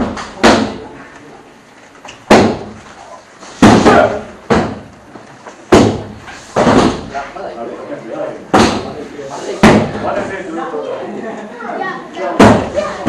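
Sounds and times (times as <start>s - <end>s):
kicks smacking padded mitts: 2.3s - 2.8s, 3.6s - 4.9s, 5.7s - 7.1s, 8.5s - 9.0s.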